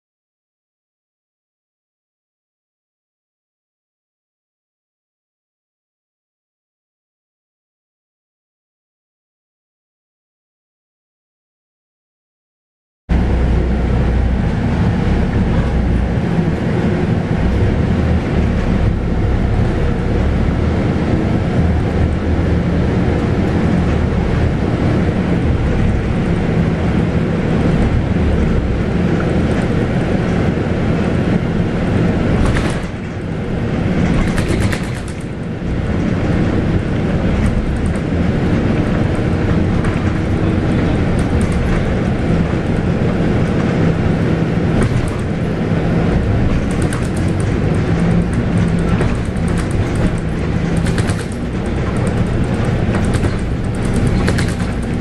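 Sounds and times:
bus diesel engine running: 0:13.1 - 0:55.0.

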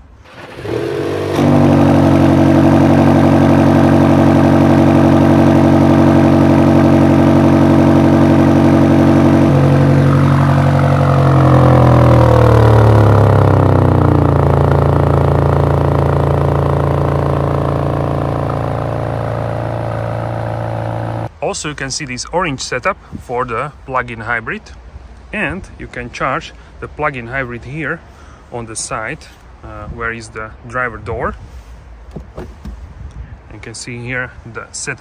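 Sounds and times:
car engine idling: 0:00.0 - 0:21.3.

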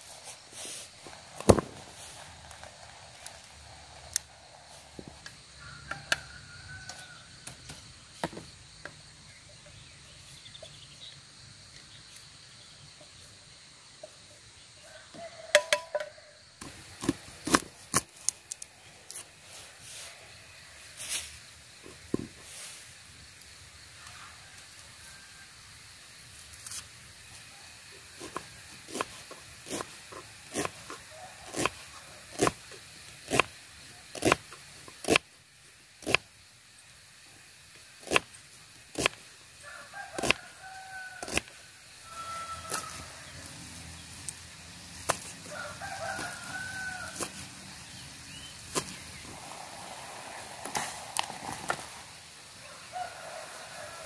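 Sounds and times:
rooster crowing: 0:05.6 - 0:07.4, 0:14.8 - 0:16.4, 0:39.6 - 0:44.0, 0:45.3 - 0:47.7, 0:52.6 - 0:54.0.

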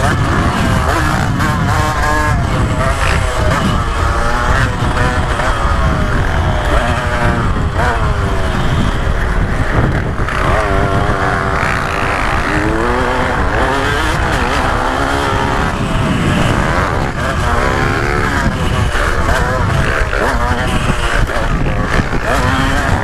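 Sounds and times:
motorcycle engine revving: 0:00.0 - 0:23.0
wind rumble on microphone: 0:00.0 - 0:23.0.

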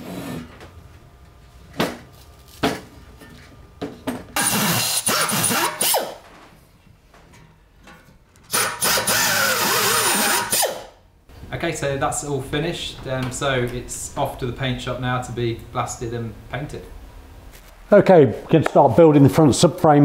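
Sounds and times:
drill bit grinding metal: 0:04.4 - 0:06.2, 0:08.5 - 0:10.8
pneumatic drill whining: 0:04.4 - 0:06.2, 0:08.5 - 0:10.9.

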